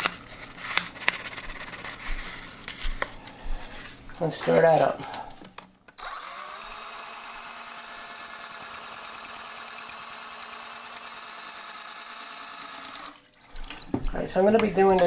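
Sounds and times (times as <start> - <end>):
electric drill spinning: 6.0 - 13.2.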